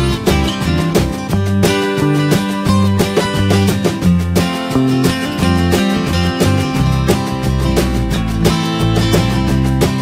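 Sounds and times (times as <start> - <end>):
strummed guitar music: 0.0 - 10.0.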